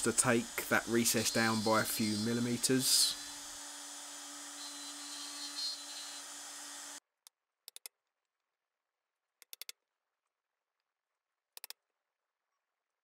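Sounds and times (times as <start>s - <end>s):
palm router cutting wood: 0.0s - 7.0s.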